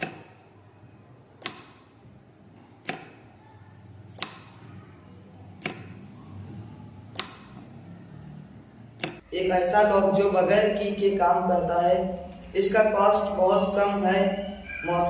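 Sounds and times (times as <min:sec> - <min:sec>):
solenoid lock clacking: 0:01.4 - 0:01.9, 0:09.0 - 0:09.2.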